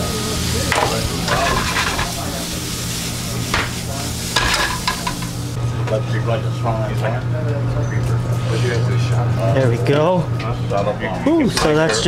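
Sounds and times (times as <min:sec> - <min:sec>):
meat sizzling in a frying pan: 0:00.0 - 0:05.6.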